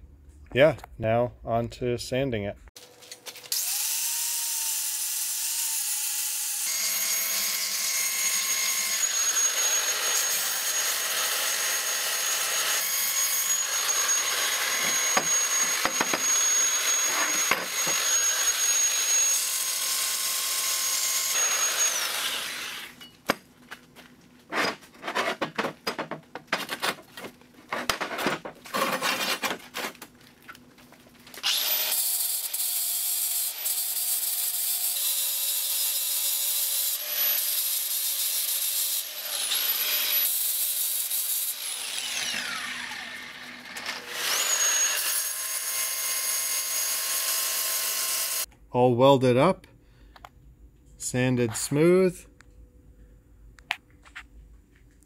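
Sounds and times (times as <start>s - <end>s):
angle grinder grinding metal: 3.5s - 23.0s, 31.4s - 48.5s.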